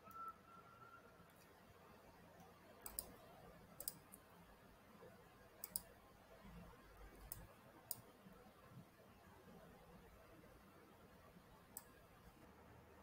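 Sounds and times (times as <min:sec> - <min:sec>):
computer mouse clicks: 0:02.4 - 0:04.3, 0:05.6 - 0:06.0, 0:07.1 - 0:08.1, 0:11.7 - 0:12.0.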